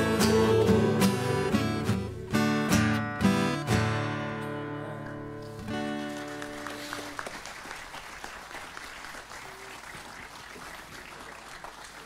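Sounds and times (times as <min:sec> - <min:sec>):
acoustic guitar chord: 0:00.0 - 0:06.8
audience applauding: 0:05.7 - 0:12.0.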